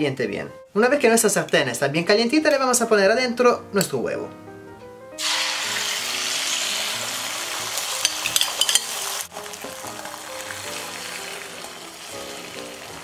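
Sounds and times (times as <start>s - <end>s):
eggs sizzling in oil: 5.2s - 13.0s.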